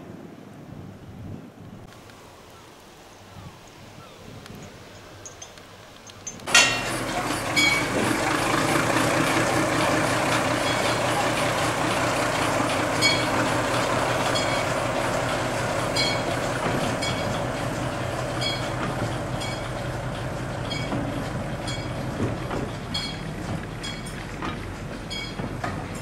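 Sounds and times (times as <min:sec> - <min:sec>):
wheels clicking over rail joints: 0:03.7 - 0:26.0
diesel locomotive running: 0:05.2 - 0:26.0.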